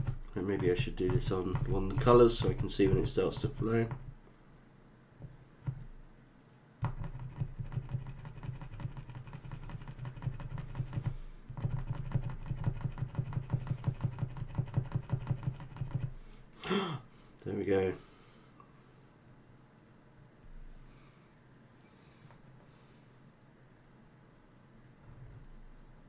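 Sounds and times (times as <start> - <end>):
marker nib tapping on paper: 0.0 - 4.1, 6.8 - 16.2.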